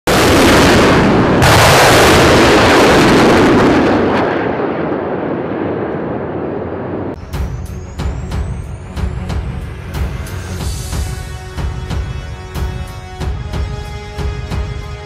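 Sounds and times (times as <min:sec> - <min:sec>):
large explosions: 0:00.1 - 0:08.7.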